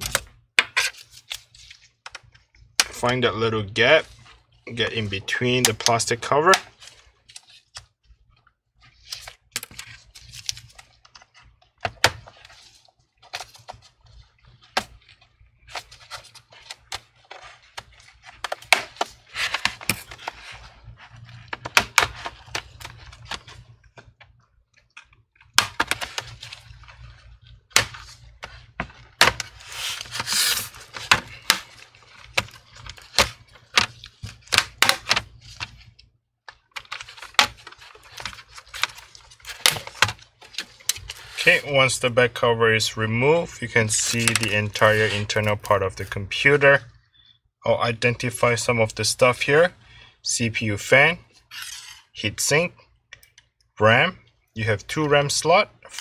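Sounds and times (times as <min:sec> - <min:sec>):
scraping and handling rustle: 0:03.9 - 0:24.2, 0:25.8 - 0:41.7, 0:43.8 - 0:46.2.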